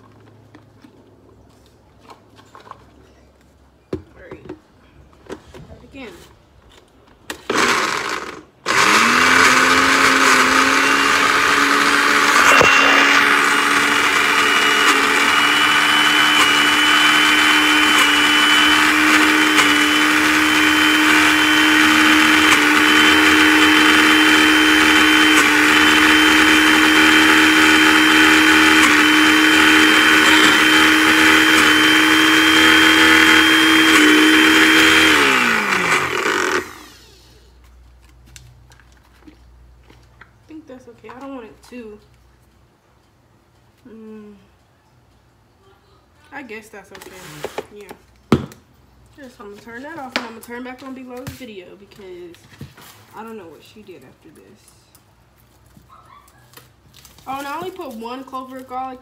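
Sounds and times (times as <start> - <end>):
blender motor whining: 7.5 - 37.4.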